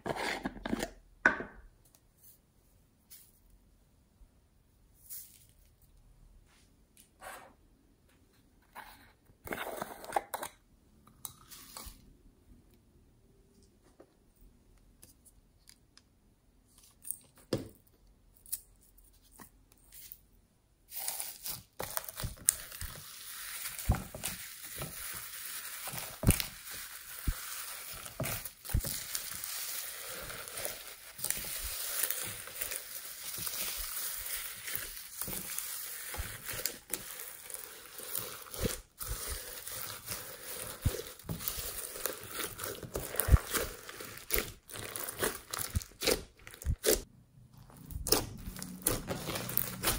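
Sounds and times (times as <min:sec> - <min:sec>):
slime crackling and squishing: 0:20.9 - 0:49.9.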